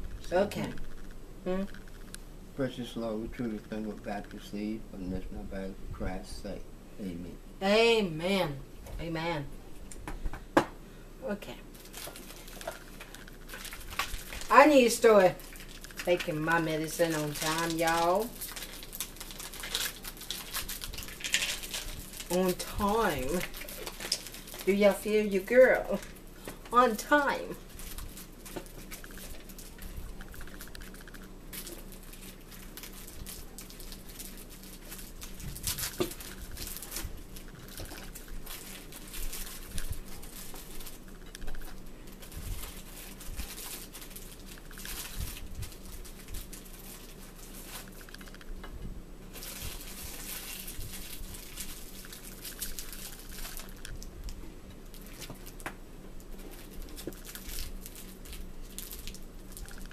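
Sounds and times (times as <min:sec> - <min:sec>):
cellophane wrapper crinkling: 0:11.7 - 0:48.6, 0:49.3 - 0:59.9.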